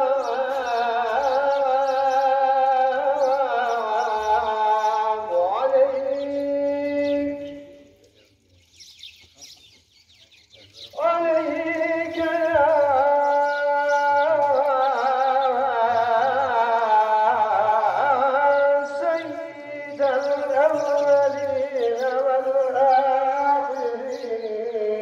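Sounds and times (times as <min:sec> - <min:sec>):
man chanting: 0:00.0 - 0:08.1, 0:10.6 - 0:25.0.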